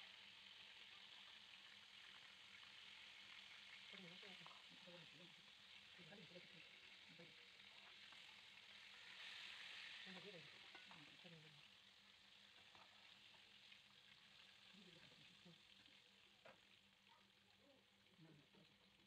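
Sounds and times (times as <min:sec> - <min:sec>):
fish sizzling in oil: 0:00.0 - 0:19.0
utensil clicking against pan: 0:10.6 - 0:11.2.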